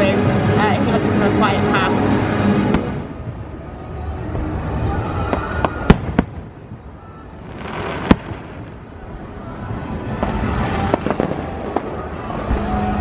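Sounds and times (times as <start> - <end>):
fireworks crackling: 0.0 - 13.0
loud sharp firework bang: 5.2 - 6.6
small firework pops: 5.2 - 6.6, 7.6 - 8.8.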